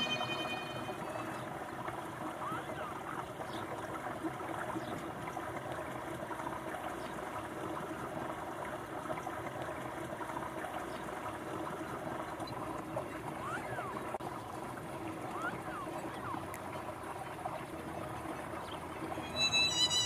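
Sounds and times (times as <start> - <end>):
rushing water: 0.0 - 20.0.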